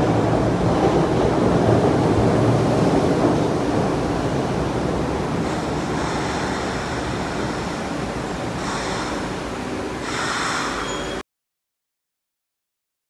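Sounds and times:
train wheels rumbling on rail: 0:00.0 - 0:11.2
high metallic squeals: 0:05.5 - 0:11.2.

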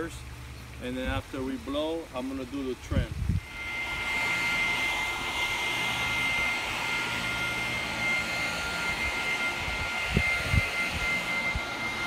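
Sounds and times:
electric leaf blower running: 0:03.2 - 0:12.0.

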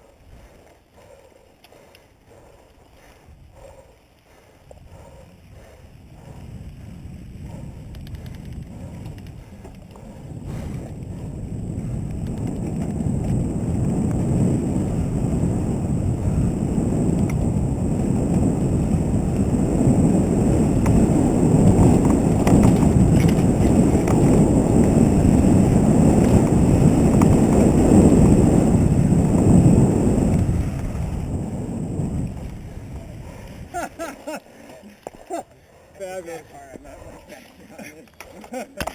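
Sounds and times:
bike tyre and trail noise: 0:00.0 - 0:38.9
wind buffeting microphone: 0:00.0 - 0:38.9
faint clicks: 0:00.6 - 0:03.1, 0:07.7 - 0:10.8.

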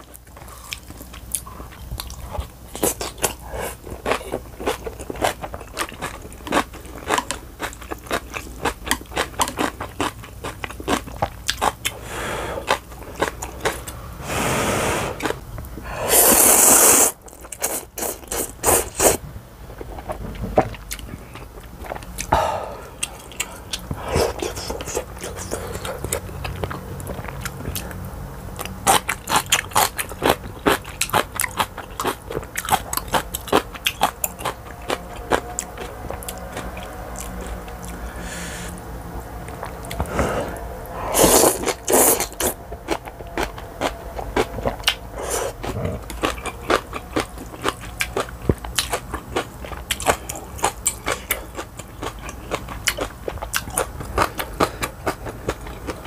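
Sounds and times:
chewing with wet smacks: 0:00.0 - 0:12.0, 0:17.2 - 0:38.1, 0:39.2 - 0:56.0
slurp of noodles: 0:16.0 - 0:17.2.

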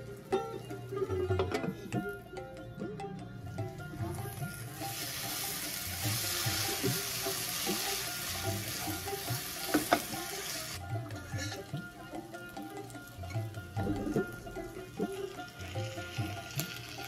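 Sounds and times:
sitar and tabla music: 0:00.0 - 0:17.0
food sizzling in a frying pan: 0:04.0 - 0:17.0.

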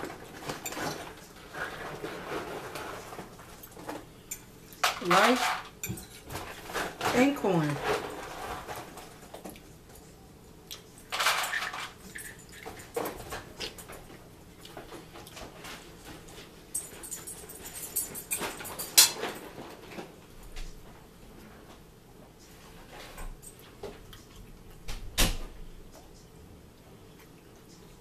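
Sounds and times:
rustling at a table: 0:00.0 - 0:10.2.

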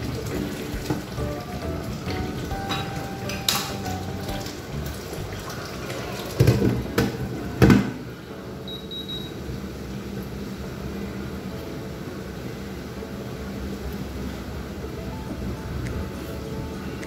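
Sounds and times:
cooktop control beeps: 0:08.6 - 0:09.5.

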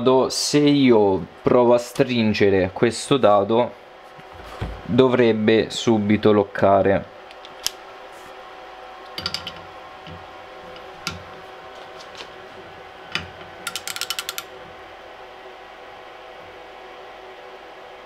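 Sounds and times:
ratchet clicks: 0:13.6 - 0:14.5
torque wrench clicks: 0:13.6 - 0:14.5.

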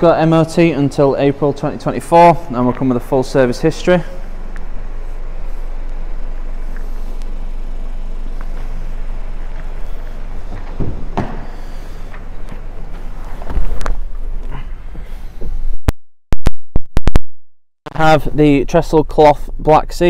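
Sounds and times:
steady low hum: 0:00.0 - 0:15.9, 0:17.9 - 0:20.0
handling noise: 0:04.3 - 0:15.6
car door knocks: 0:10.5 - 0:11.6.

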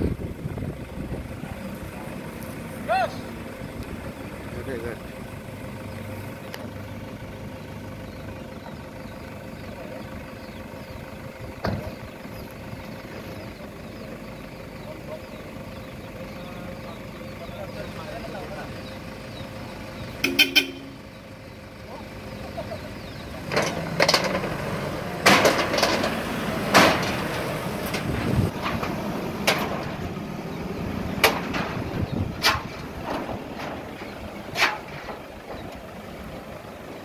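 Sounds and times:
vehicle engine running: 0:00.0 - 0:37.0
tyres clanking on metal ramps: 0:23.4 - 0:36.5.

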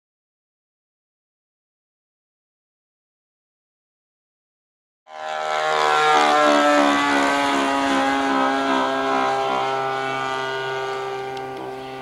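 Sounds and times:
model plane motor droning: 0:05.1 - 0:12.0.

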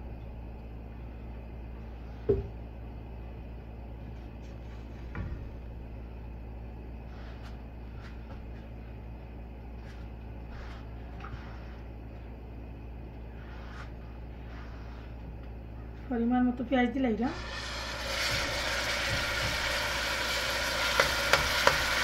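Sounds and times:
low kitchen hum: 0:00.0 - 0:22.0
knock on pot: 0:02.3 - 0:02.5, 0:18.2 - 0:19.8
oil pouring into metal pot: 0:17.3 - 0:22.0.

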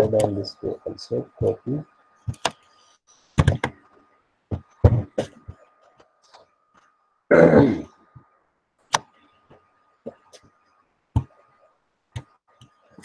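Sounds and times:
person clearing throat: 0:07.3 - 0:07.9.

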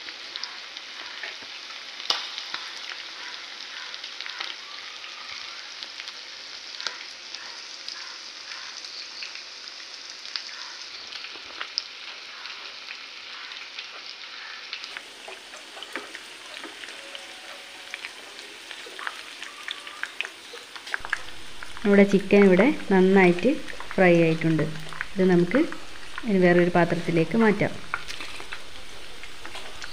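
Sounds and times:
chicken sizzling in hot oil: 0:00.0 - 0:29.9
spatula turning food in pan: 0:14.9 - 0:29.9.

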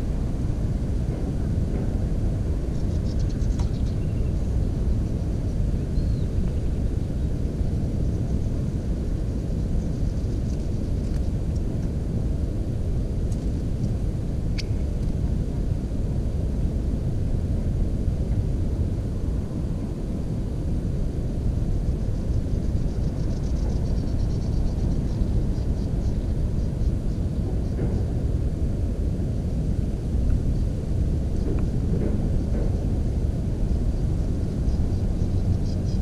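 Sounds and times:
wind buffeting microphone: 0:00.0 - 0:36.0
sharp faint click: 0:14.5 - 0:15.2.

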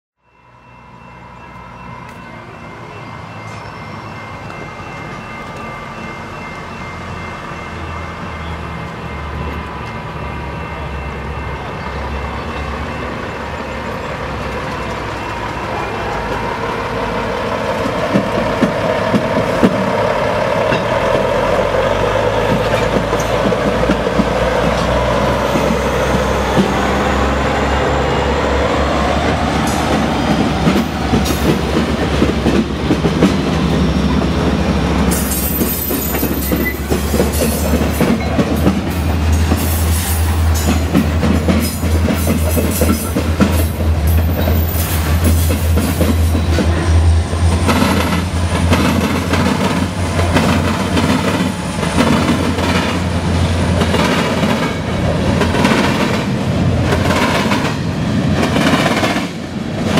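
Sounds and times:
steel wheels clacking over rail joints: 0:13.9 - 0:28.0, 0:29.1 - 0:59.9.

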